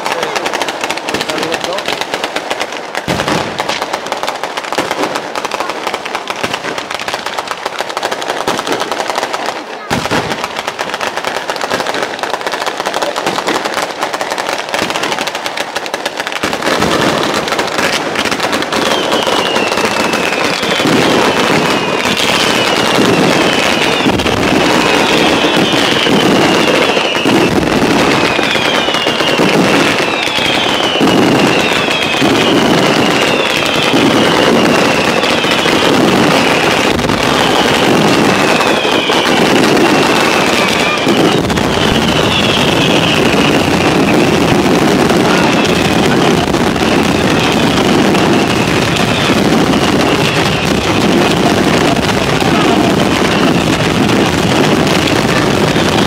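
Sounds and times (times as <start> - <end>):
fireworks crackling: 0.0 - 56.0
falling firework whistles: 14.4 - 56.0.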